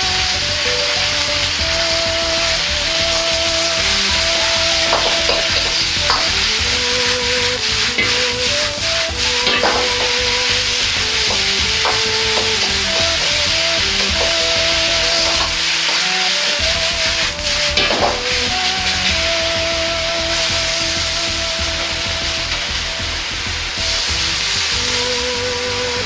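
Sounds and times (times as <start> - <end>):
leaves sizzling in hot oil: 0.0 - 26.0
metal ladle scraping a wok: 2.9 - 18.8.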